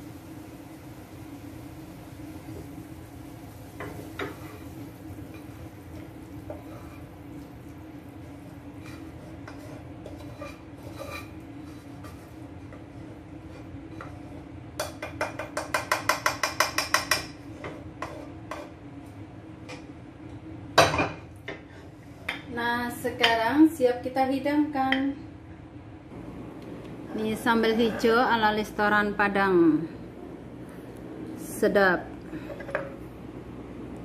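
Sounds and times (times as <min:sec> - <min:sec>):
metal spoon scraping a pan: 0:03.8 - 0:05.5, 0:06.5 - 0:07.2, 0:08.2 - 0:18.8
spoon tapping against a pan: 0:14.8 - 0:17.4.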